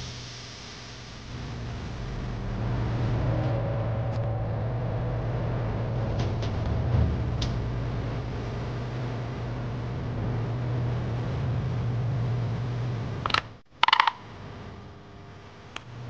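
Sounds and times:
low machine hum: 0:00.0 - 0:16.0
rattle of clicks: 0:13.2 - 0:14.2
sharp click: 0:13.2 - 0:14.2.

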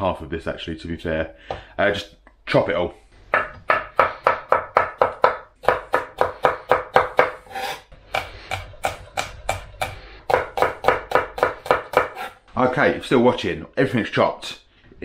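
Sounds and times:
knife chopping on wooden board: 0:03.3 - 0:12.4.

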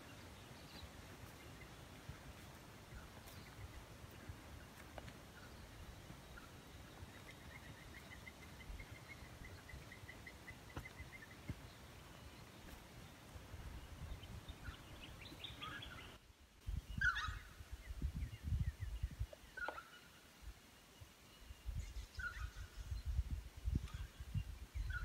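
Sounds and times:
sharp bird calls: 0:13.9 - 0:16.2, 0:16.9 - 0:17.7.

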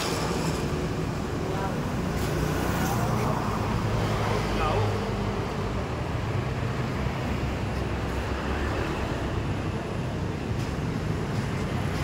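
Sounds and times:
outdoor market noise: 0:00.0 - 0:12.0
street traffic hum: 0:00.0 - 0:12.0.

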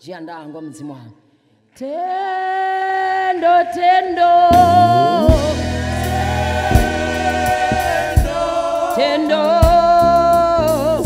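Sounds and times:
person singing a long note: 0:04.5 - 0:06.4
deep bass: 0:04.5 - 0:08.5
drum hits: 0:04.5 - 0:09.0.

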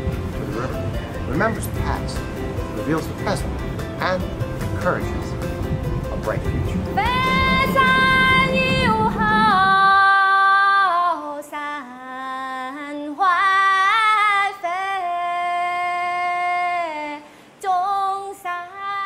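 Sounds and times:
woman singing slow melody: 0:06.8 - 0:19.0.

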